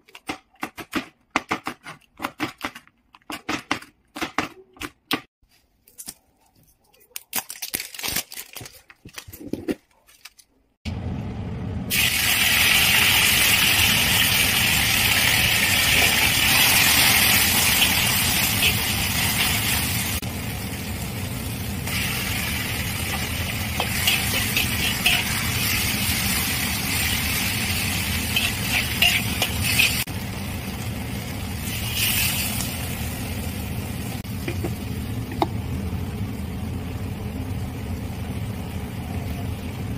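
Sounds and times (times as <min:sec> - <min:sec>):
food sizzling in a wok: 0:11.9 - 0:35.1
spatula scraping a wok: 0:23.1 - 0:26.4, 0:27.8 - 0:30.1.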